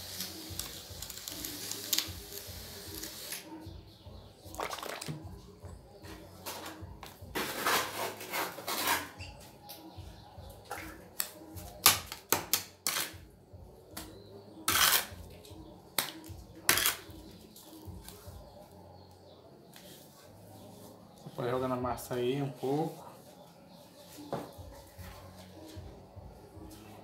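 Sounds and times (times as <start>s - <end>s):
trowel scraping wet mortar: 7.4s - 9.3s, 14.6s - 15.2s, 16.7s - 17.1s.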